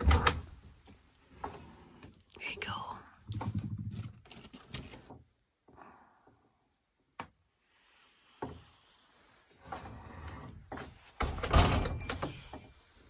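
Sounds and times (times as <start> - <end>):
door closing with heavy thump: 11.2 - 12.0.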